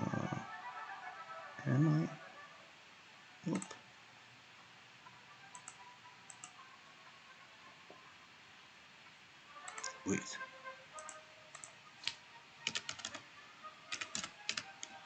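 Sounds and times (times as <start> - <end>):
person humming briefly: 1.6 - 2.2
soft keystrokes: 11.0 - 13.2, 13.9 - 14.6.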